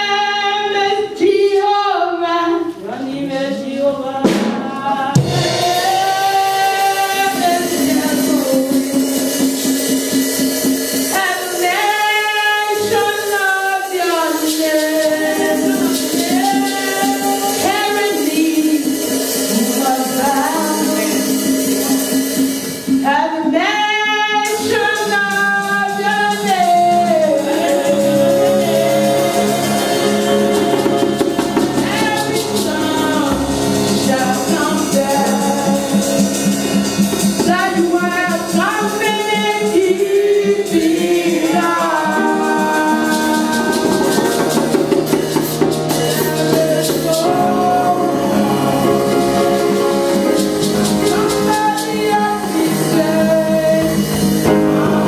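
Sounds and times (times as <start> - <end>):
woman singing into microphone: 0.0 - 9.7, 11.0 - 22.2, 23.0 - 50.0, 50.8 - 55.0
group of singers: 0.0 - 55.0
rhythmic hand percussion: 4.2 - 55.0.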